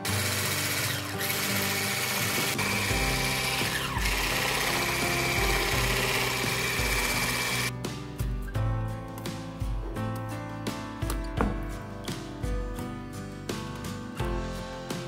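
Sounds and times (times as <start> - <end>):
electric whisk whirring: 0.0 - 7.7
background music: 0.0 - 15.0.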